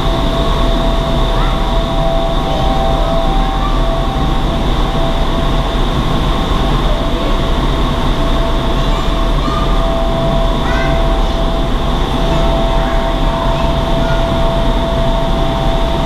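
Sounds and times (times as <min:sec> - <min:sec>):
loud rush of high-speed air: 0:00.0 - 0:16.0
steady tones: 0:00.0 - 0:16.0.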